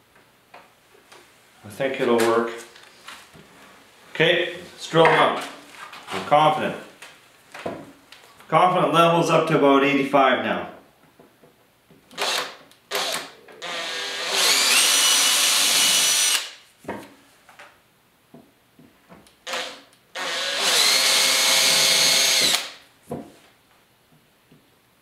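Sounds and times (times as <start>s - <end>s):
cordless drill motor whine: 12.2s - 16.5s, 19.5s - 22.7s
drill trigger pulses: 12.2s - 16.6s, 19.5s - 22.8s.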